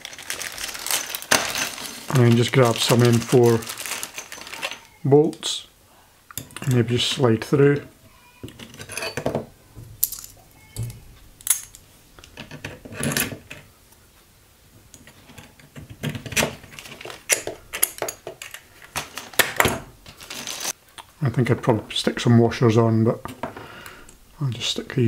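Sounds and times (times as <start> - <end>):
small steel bolts clinking: 6.3 - 6.9, 8.5 - 13.6, 16.3 - 19.7.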